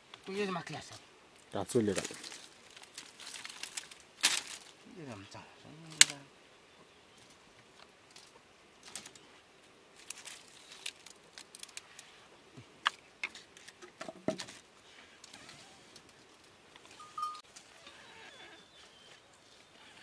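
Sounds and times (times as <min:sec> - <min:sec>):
dry twigs snapping: 0:01.9 - 0:04.8, 0:05.9 - 0:06.3, 0:07.8 - 0:09.2, 0:10.0 - 0:12.1.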